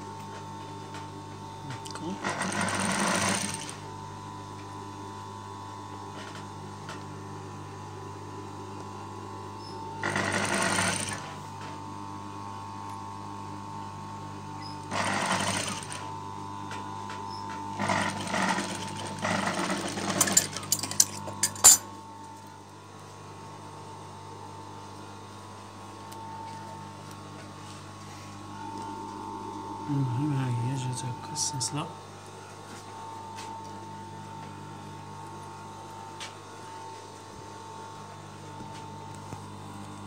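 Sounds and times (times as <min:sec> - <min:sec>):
sewing machine motor humming: 0:02.1 - 0:03.8, 0:10.0 - 0:11.4, 0:14.8 - 0:16.2, 0:17.7 - 0:21.5
sewing machine stitching fabric: 0:02.1 - 0:03.8, 0:10.0 - 0:11.4, 0:14.8 - 0:16.1, 0:17.8 - 0:21.2.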